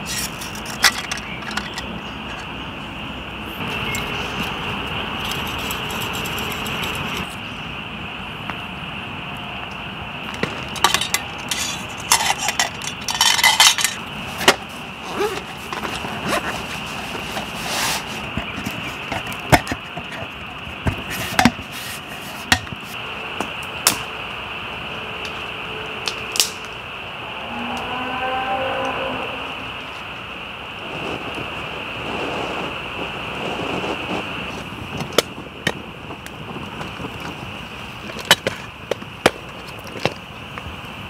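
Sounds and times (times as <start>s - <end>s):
metal pot and utensils clinking: 10.6s - 16.6s
frogs chorus: 22.7s - 30.8s.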